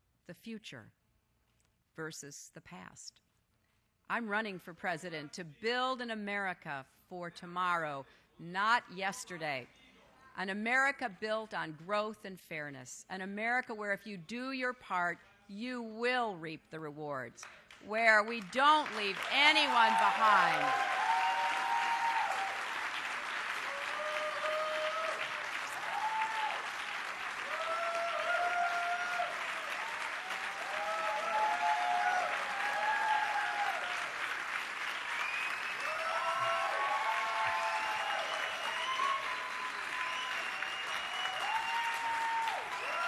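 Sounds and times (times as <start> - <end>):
audience applauding: 18.4 - 43.0
long shouts: 19.6 - 22.7, 23.6 - 26.7, 27.4 - 34.0, 35.8 - 43.0.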